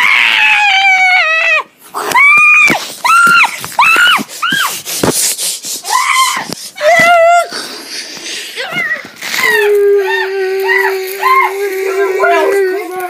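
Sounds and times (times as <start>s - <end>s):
child shrieking: 9.4s - 13.0s.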